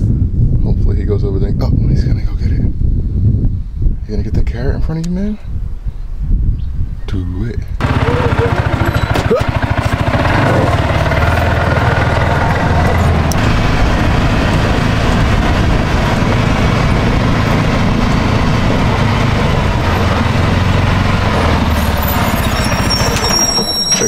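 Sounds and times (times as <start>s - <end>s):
wind and tyre noise: 0.0s - 24.0s
small vehicle engine running: 7.8s - 24.0s.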